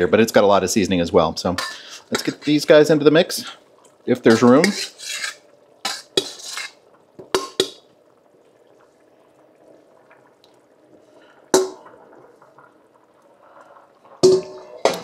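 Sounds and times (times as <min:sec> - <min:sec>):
metal utensil scraping a pot: 0:01.6 - 0:02.7, 0:04.3 - 0:06.8.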